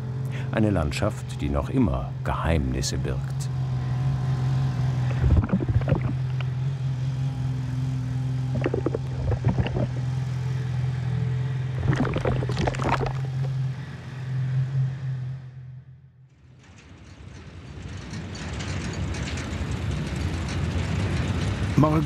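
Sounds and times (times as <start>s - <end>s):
diesel locomotive engine hum: 0.0s - 22.0s
wagon wheels clattering and clanking: 16.7s - 21.8s.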